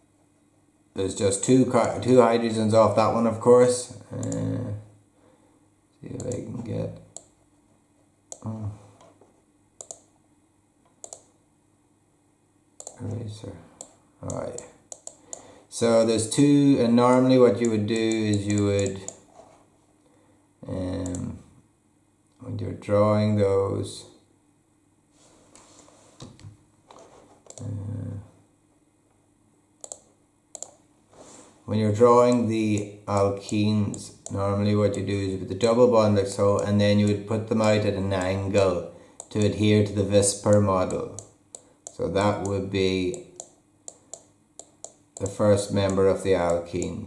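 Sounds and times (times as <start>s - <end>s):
sharp mouse clicks: 9.8s - 10.1s, 10.9s - 11.3s, 12.8s - 13.1s, 13.8s - 15.4s, 29.8s - 30.8s, 40.5s - 47.0s.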